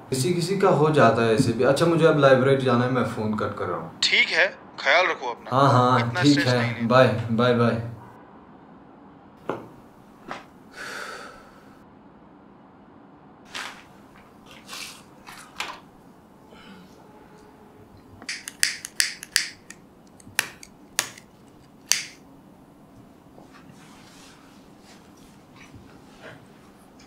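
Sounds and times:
sharp clicks: 18.2 - 22.2.

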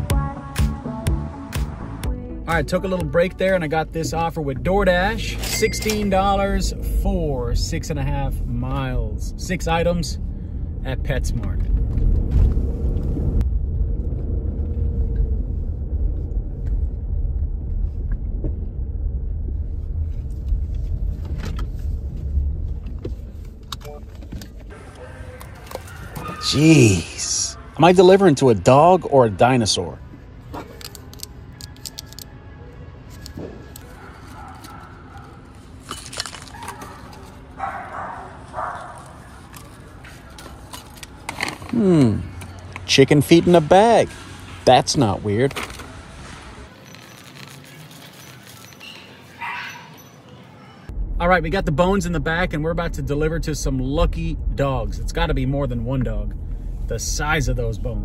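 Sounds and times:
car road rumble: 2.5 - 29.2, 29.8 - 58.0
dog barking: 25.0 - 26.6, 33.9 - 35.4, 36.5 - 39.2, 49.4 - 50.0.

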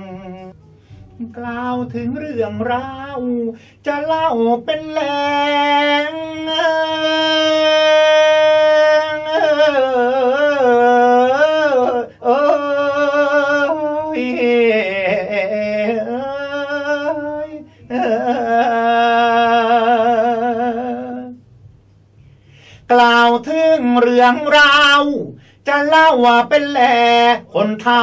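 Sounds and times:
man singing long wavering notes: 0.0 - 0.5.

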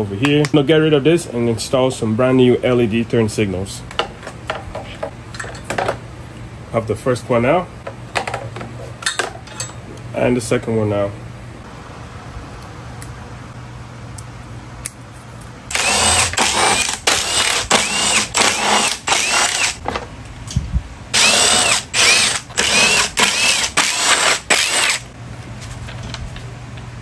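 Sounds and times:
power tool motor whine: 15.7 - 19.8, 21.1 - 25.1.

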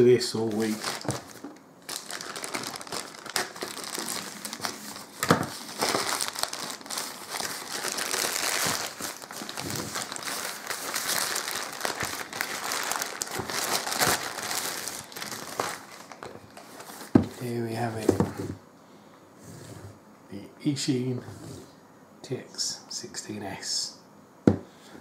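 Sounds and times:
plastic crinkling and crackling: 0.4 - 17.4.

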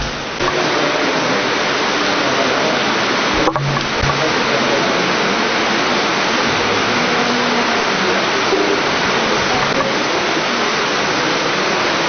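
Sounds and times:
low thumps: 0.0 - 0.6, 3.4 - 4.4
loud steady hiss: 0.0 - 12.0.

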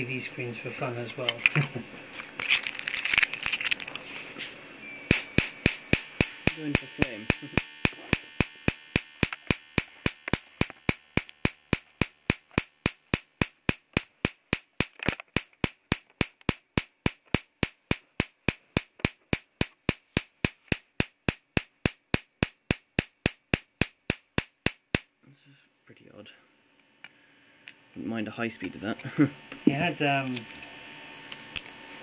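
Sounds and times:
electric spark cracks: 5.0 - 25.1.

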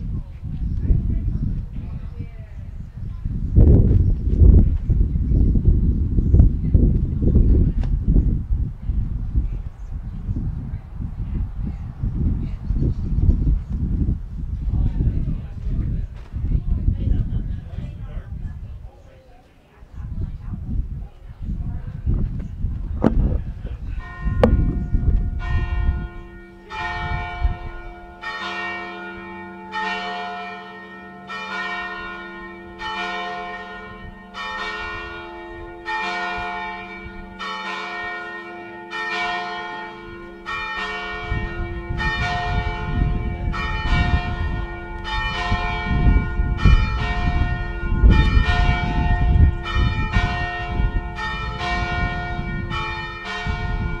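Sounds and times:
church bells ringing: 23.8 - 54.0.

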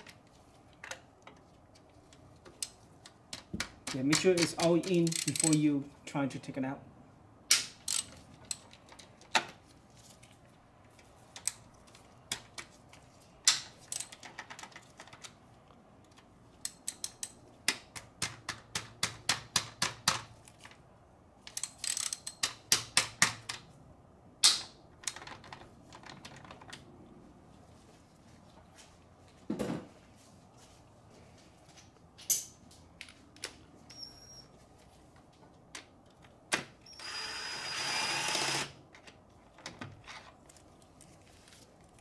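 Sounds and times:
ratchet wrench clicking: 4.1 - 5.6, 7.8 - 8.6, 13.9 - 14.2, 16.6 - 17.4, 21.5 - 23.2.

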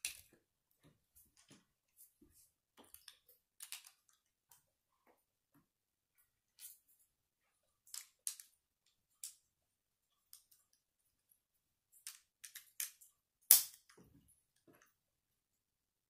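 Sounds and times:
plastic bricks clicking together: 2.9 - 4.2, 12.0 - 14.0.

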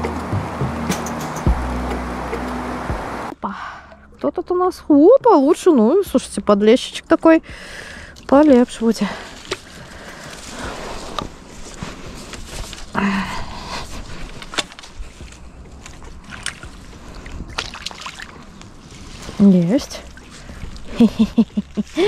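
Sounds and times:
water sloshing and splashing: 7.2 - 22.0.

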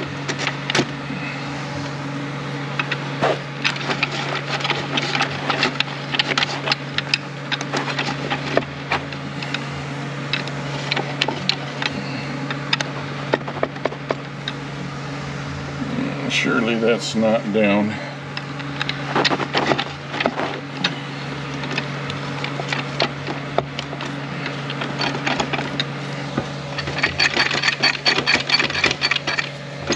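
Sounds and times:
steady low hum: 0.0 - 29.9
metallic clicks and clinks: 26.7 - 29.9.

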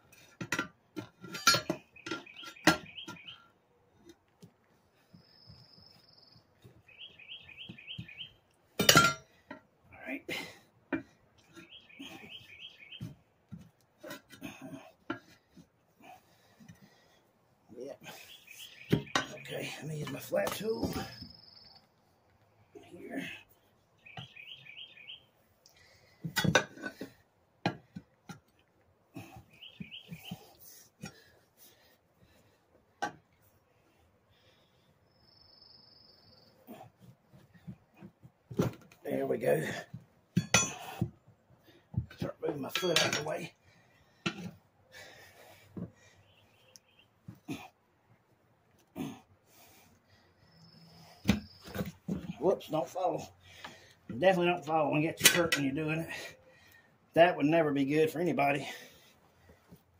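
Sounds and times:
birds chirping: 1.2 - 32.8, 33.4 - 38.2, 38.9 - 59.6
bird chirping: 1.6 - 3.7, 5.0 - 8.6, 11.4 - 13.3, 17.7 - 25.9, 29.2 - 31.2, 34.4 - 36.8, 46.0 - 47.3, 50.4 - 53.2
tire bar clanking on wheel rim: 8.8 - 9.4, 39.6 - 41.1.

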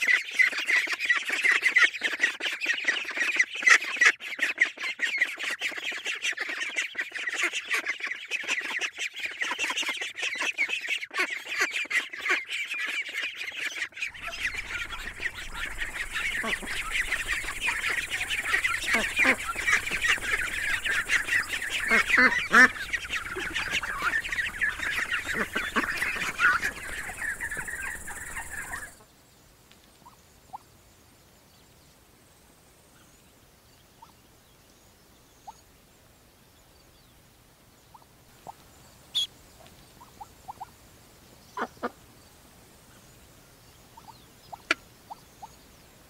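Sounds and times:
ducks calling rapidly: 0.0 - 29.0
faint chirps and clicks: 13.7 - 29.0, 29.6 - 30.6, 37.8 - 40.8.

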